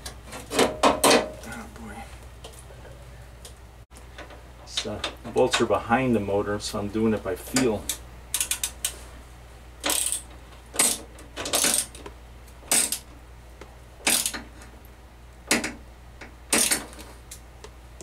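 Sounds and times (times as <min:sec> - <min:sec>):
ratchet wrench clicking: 0:08.3 - 0:08.9, 0:09.8 - 0:11.0.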